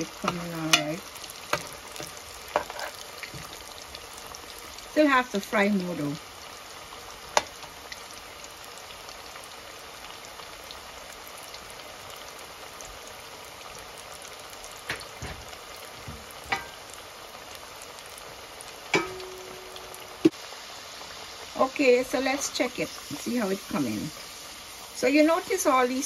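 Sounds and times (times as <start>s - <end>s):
fries sizzling in hot oil: 0.0s - 26.0s.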